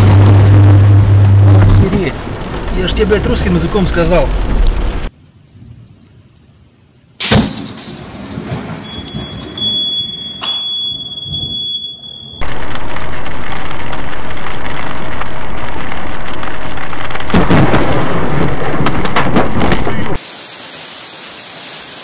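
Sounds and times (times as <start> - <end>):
heavy rain on windshield: 0.0 - 5.1, 12.4 - 20.2
thunder rumbling: 0.0 - 5.9, 7.3 - 10.0, 12.4 - 20.2
steady high beep: 8.8 - 12.4.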